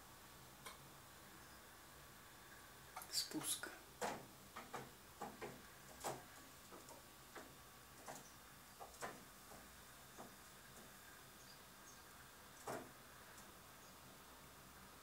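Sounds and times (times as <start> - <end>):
faint clicks and taps: 4.0 - 11.0.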